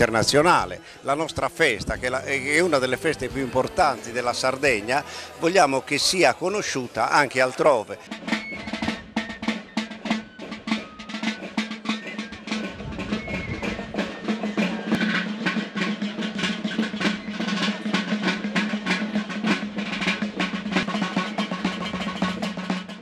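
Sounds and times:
bass drum beats: 0:08.0 - 0:23.0
snare drum rolls: 0:08.0 - 0:23.0.

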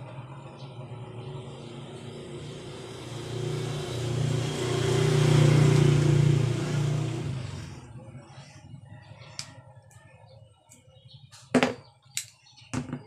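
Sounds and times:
vehicle engine passing by: 0:00.0 - 0:09.6.

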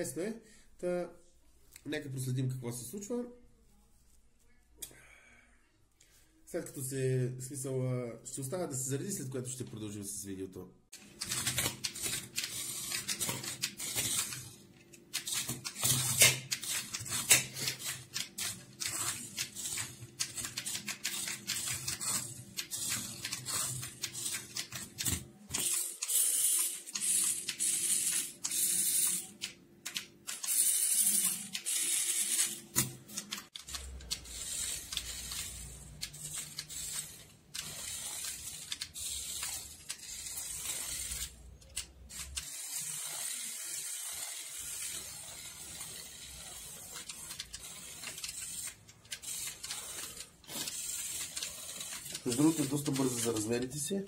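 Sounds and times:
toy car motor whining: 0:18.8 - 0:29.3, 0:30.3 - 0:32.6, 0:33.5 - 0:53.7.

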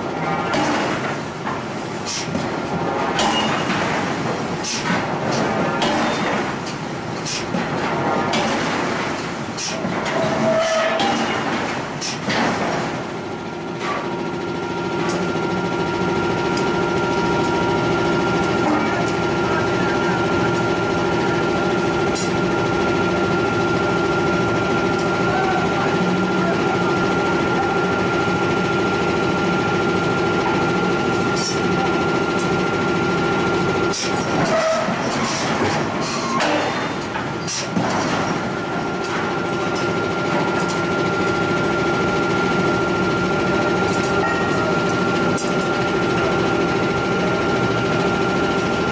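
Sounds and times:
machine drone with high whine: 0:00.0 - 0:48.9
metal clanks and scraping: 0:07.2 - 0:12.7.

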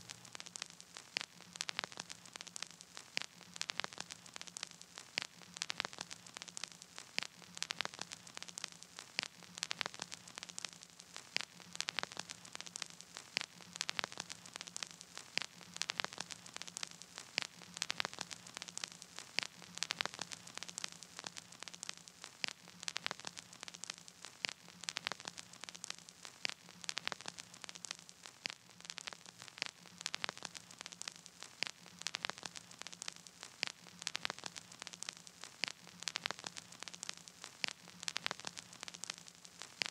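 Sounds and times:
crackling static: 0:00.0 - 0:39.9.

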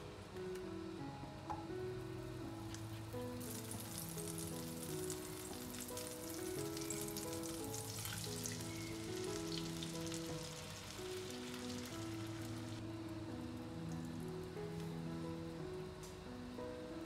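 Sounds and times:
background music: 0:00.0 - 0:17.0
butter sizzling in frying pan: 0:02.8 - 0:12.8.

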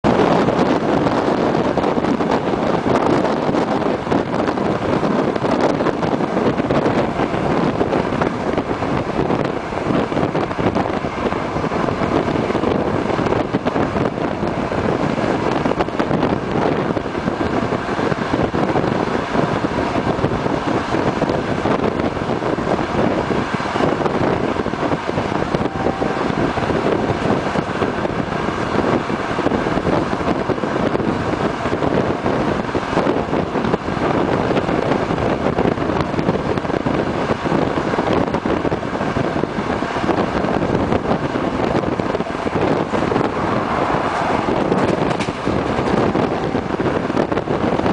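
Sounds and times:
train wheels rumbling on rails: 0:00.0 - 0:47.9
wind noise on microphone: 0:00.0 - 0:47.9.

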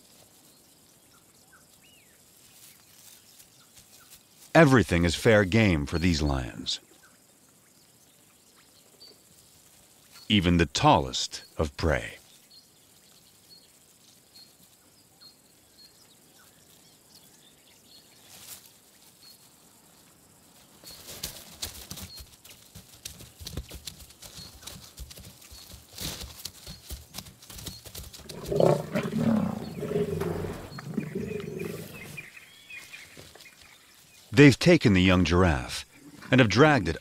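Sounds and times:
crackles and knocks in brush: 0:21.0 - 0:29.1
lions growling: 0:28.2 - 0:32.3.

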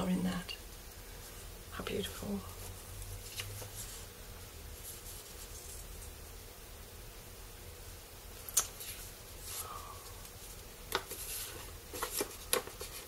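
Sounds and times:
paper rustling and crinkling: 0:02.4 - 0:04.1, 0:04.7 - 0:06.4, 0:08.7 - 0:13.0.

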